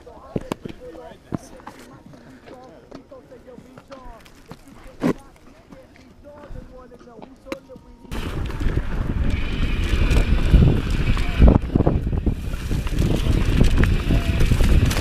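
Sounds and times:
bike rumbling and rattling: 8.1s - 15.0s
wind buffeting microphone: 8.1s - 15.0s.

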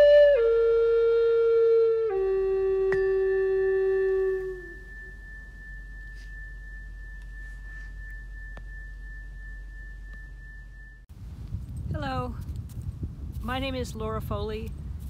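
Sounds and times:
flute-like wind instrument note: 0.0s - 10.8s
high pure tone: 0.0s - 11.1s.

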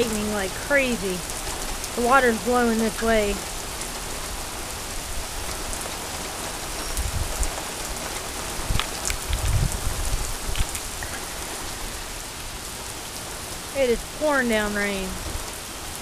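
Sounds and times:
heavy rain on pavement: 0.0s - 16.0s
low rumbles: 8.5s - 14.3s.

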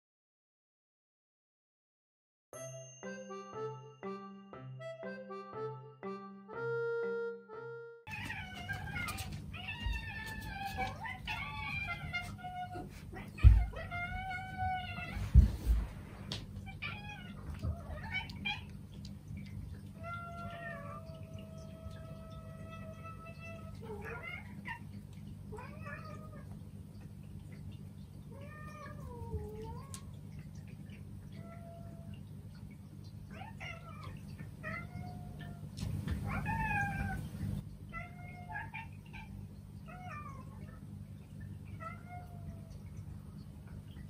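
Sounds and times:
cats meowing: 8.1s - 15.9s, 16.5s - 18.8s, 19.8s - 26.7s, 28.3s - 30.2s, 31.2s - 32.2s, 33.3s - 40.8s, 41.7s - 42.9s.

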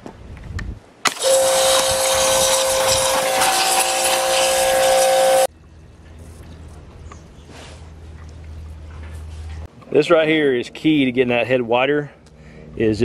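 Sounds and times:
pressure washer whine: 1.1s - 5.5s
water jet spray hissing: 1.1s - 5.5s.

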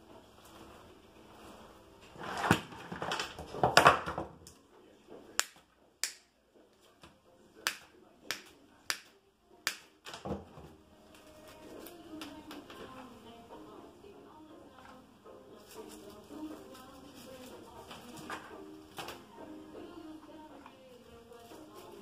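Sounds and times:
rustling and crackling greenery: 15.5s - 19.3s, 20.4s - 22.0s.

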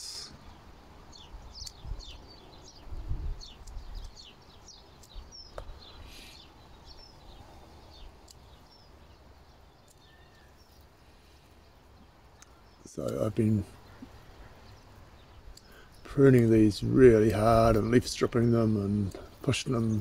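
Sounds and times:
small songbirds chirping: 0.0s - 20.0s
low wind rumble on microphone: 1.2s - 6.1s.

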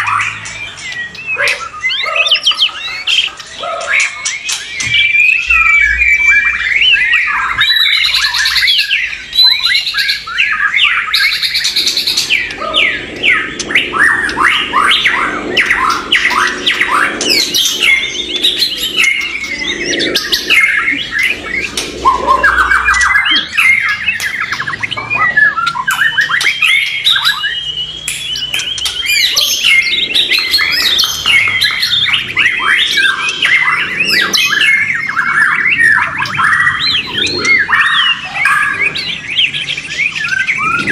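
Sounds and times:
birds singing rapid whistles: 0.0s - 40.9s.

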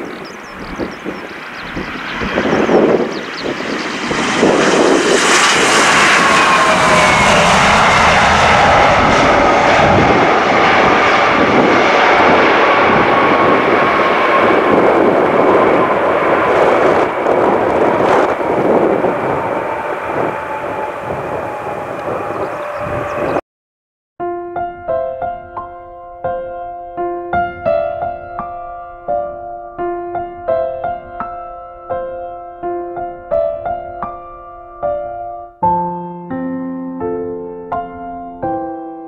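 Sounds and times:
falling engine whine: 0.0s - 23.4s
jet engines roaring: 0.0s - 23.4s.

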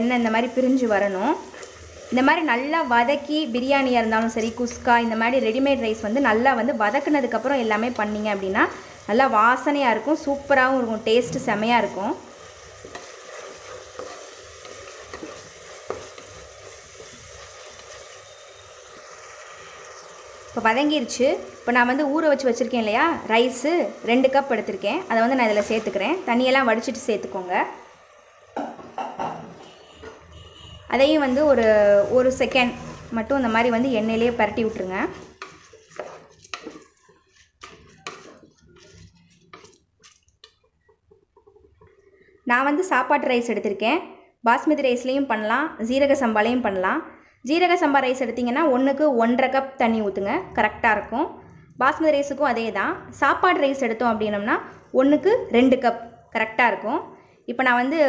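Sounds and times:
masala sizzling in oil: 0.0s - 28.6s, 29.7s - 43.8s
spatula knocking pot: 12.8s - 18.0s, 34.2s - 42.3s.

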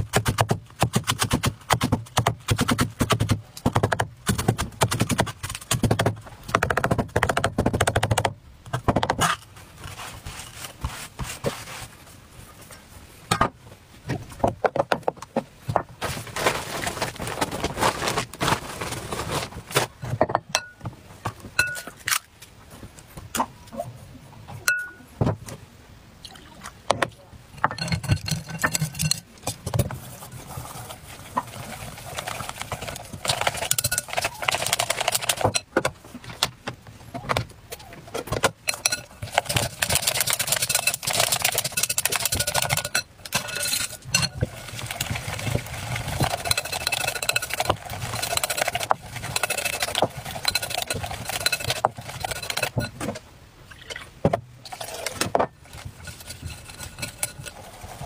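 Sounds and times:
bag rustling: 16.0s - 20.0s
whisk scraping glass bowl: 30.0s - 35.6s, 38.7s - 53.0s, 54.6s - 58.0s.

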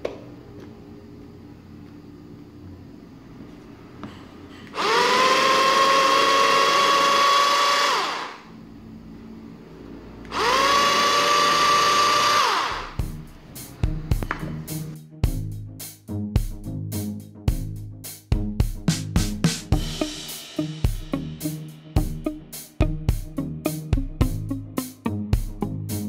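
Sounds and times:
electric food chopper whirring: 4.7s - 8.6s, 10.2s - 13.0s
music: 12.8s - 26.0s.

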